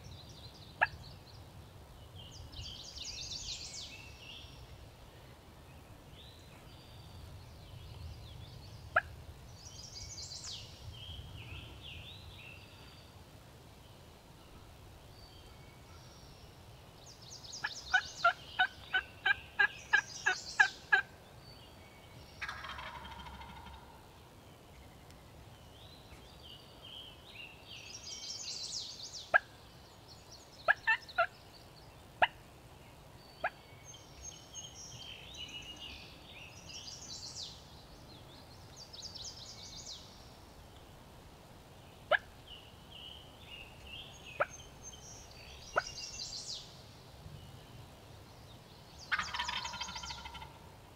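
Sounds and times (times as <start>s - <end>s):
songbirds singing: 0.0s - 50.9s
turkey clucks: 17.9s - 21.1s, 22.4s - 24.0s, 30.7s - 31.3s, 49.1s - 50.6s
turkey gobbling: 17.9s - 21.1s, 22.4s - 24.0s, 30.7s - 31.3s, 49.1s - 50.6s
turkey yelping: 49.1s - 50.5s.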